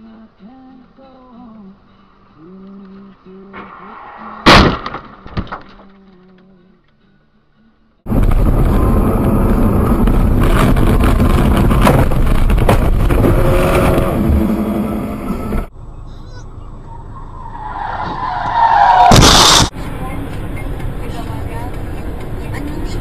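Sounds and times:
in-car road and engine noise: 0.0 - 7.0, 8.0 - 23.0
car crash knocks and bumps: 4.4 - 5.8, 10.0 - 14.0, 19.0 - 19.7.

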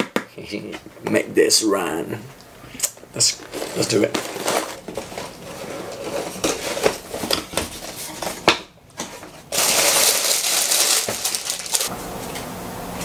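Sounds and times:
plastic bags rustling: 3.1 - 8.4, 9.0 - 11.9.

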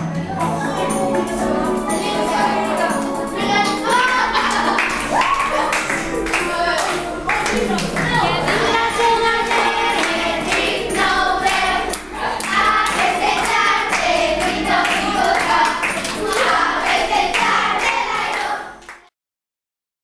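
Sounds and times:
children singing in unison: 0.4 - 18.8
children clapping in rhythm: 2.0 - 19.1.

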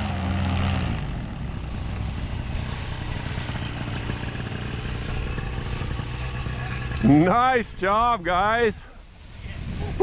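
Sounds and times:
paramotor engine and propeller: 0.0 - 10.0.

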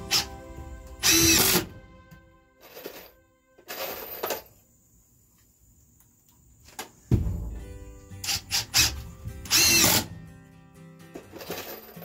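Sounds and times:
cordless drill motor: 1.0 - 1.6, 9.5 - 10.0.

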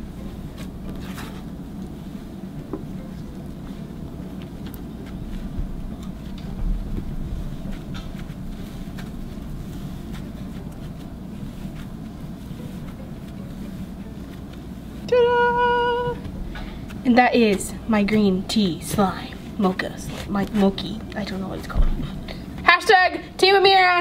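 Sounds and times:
steady low hum: 0.0 - 24.0
slime squishing by hand: 0.2 - 15.0
person humming a note: 15.1 - 16.3.

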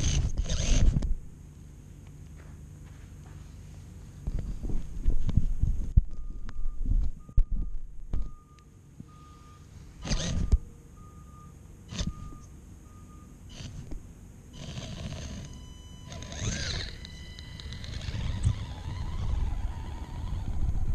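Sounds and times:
short electronic beeps: 6.1 - 13.4, 15.4 - 18.2
whirring hiss with high tones: 13.5 - 20.9.

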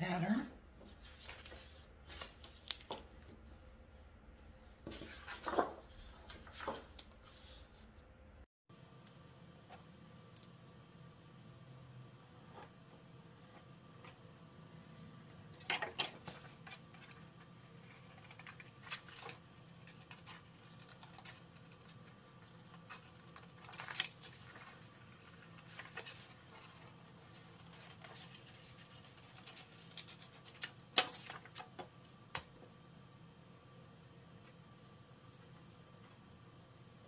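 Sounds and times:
paper rustling and scraping: 0.8 - 7.9, 15.6 - 31.9
scissors cutting paper: 17.8 - 31.1.

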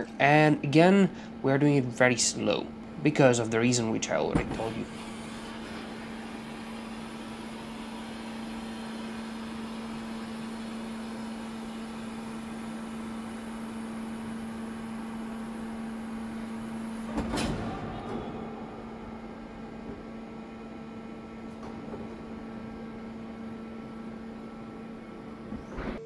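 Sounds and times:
hydraulic cart humming: 0.0 - 26.0.

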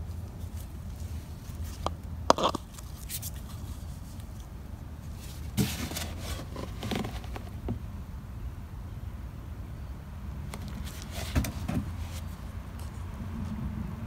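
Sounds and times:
rustling and scraping: 0.0 - 7.8, 10.5 - 13.6
low steady hum: 0.0 - 14.0.

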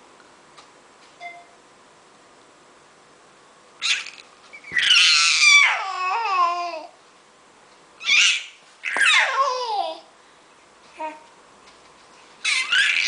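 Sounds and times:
baby squealing with delight: 3.8 - 6.3, 8.0 - 9.6, 12.4 - 13.0.

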